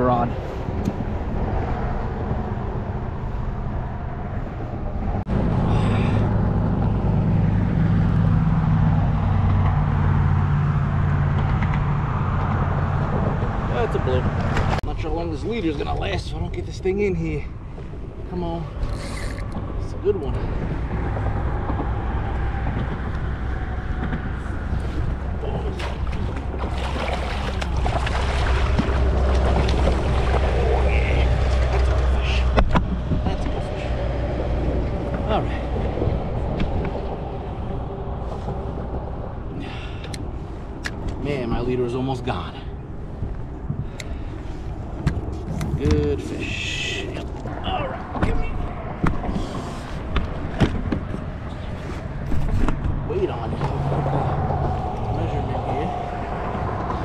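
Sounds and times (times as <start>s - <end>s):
low engine rumble: 0.0s - 57.0s
wind buffeting microphone: 0.0s - 57.0s
water lapping and splashing: 20.4s - 40.8s
fish thrashing at surface: 25.6s - 32.0s.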